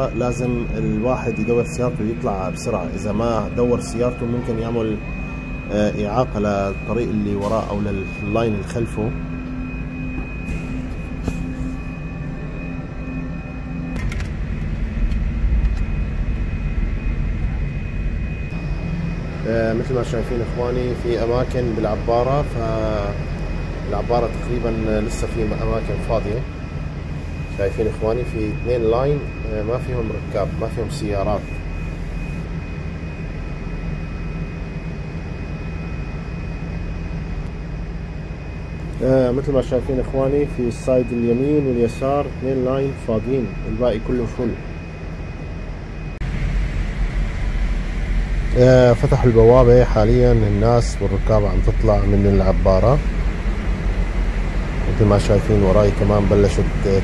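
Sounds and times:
ferry machinery low rumble: 0:00.0 - 0:57.0
high steady whine: 0:00.0 - 0:57.0.

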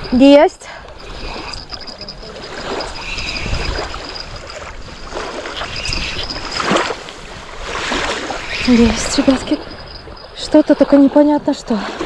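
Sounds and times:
water sloshing and splashing: 0:00.0 - 0:12.0
fishing reel cranking: 0:01.0 - 0:06.9.

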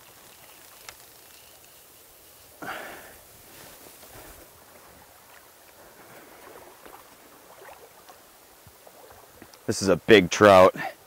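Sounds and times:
stream flowing: 0:00.0 - 0:11.0
small splashes: 0:04.0 - 0:09.7.

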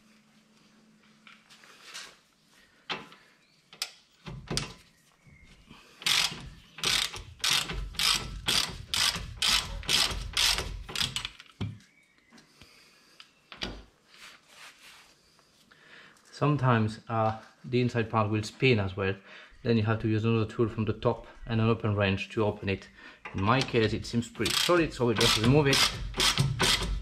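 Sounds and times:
ratchet wrench clicking: 0:06.0 - 0:11.4, 0:24.4 - 0:27.0.

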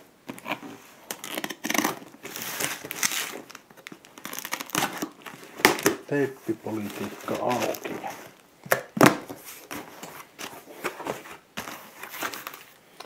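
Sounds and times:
tape and cardboard tearing: 0:00.3 - 0:06.0
knife slitting packing tape: 0:01.1 - 0:03.4.

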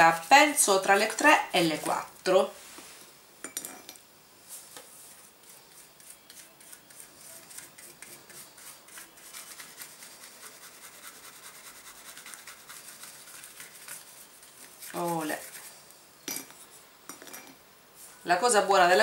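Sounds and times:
scratchy brush strokes: 0:00.0 - 0:03.1, 0:04.4 - 0:16.0.

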